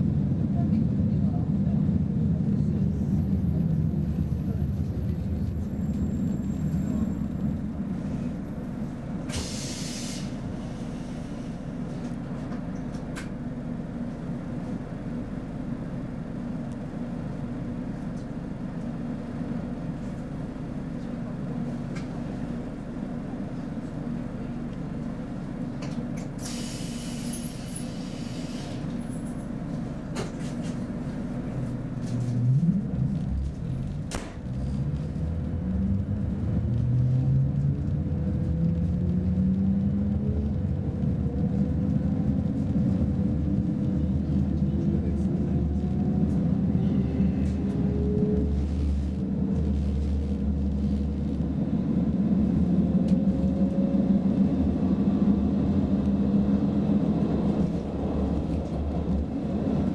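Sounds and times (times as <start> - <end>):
train equipment hum and rumble: 0.0 - 59.9
hiss of released air: 9.3 - 11.2, 26.4 - 28.8.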